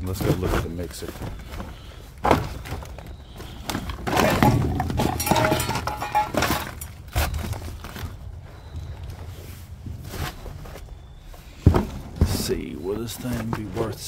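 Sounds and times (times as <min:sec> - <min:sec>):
debris and metal clattering: 0:02.3 - 0:08.3
metallic ringing: 0:04.3 - 0:06.9.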